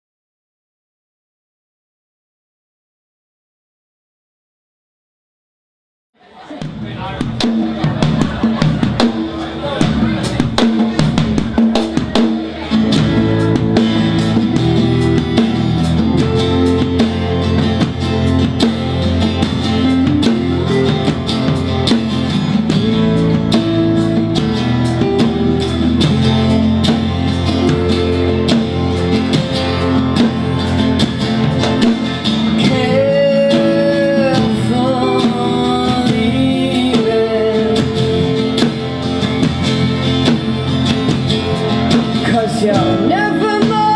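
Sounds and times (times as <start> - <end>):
drum kit: 6.5 - 43.9
strummed acoustic guitar: 6.8 - 43.9
electric bass: 6.9 - 43.9
woman singing: 32.6 - 38.3, 42.3 - 43.9.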